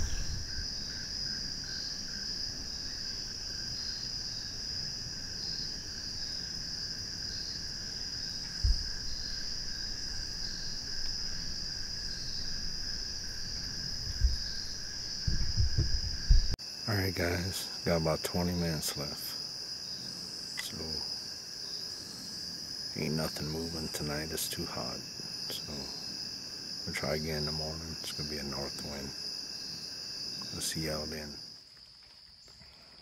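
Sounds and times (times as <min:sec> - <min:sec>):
high insect trill: 0:00.0 - 0:33.0
low faint insect trill: 0:00.0 - 0:33.0
dull low bumps: 0:08.4 - 0:11.6, 0:12.4 - 0:16.6.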